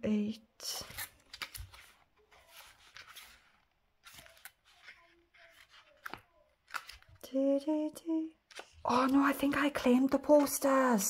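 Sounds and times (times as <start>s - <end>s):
paper pages rustling: 0.7s - 7.2s
page turning clicks: 0.8s - 3.4s, 4.0s - 7.2s.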